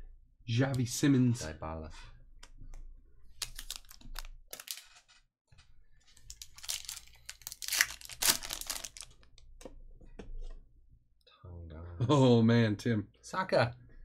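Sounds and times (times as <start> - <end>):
cards rustling and clicking: 3.3 - 5.2, 6.0 - 9.4
foil wrapper tearing and crinkling: 3.4 - 4.8, 6.2 - 9.1.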